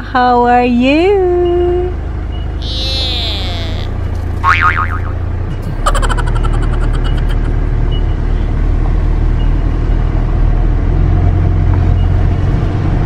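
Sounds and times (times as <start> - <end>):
car driving slowly: 3.2 - 4.5.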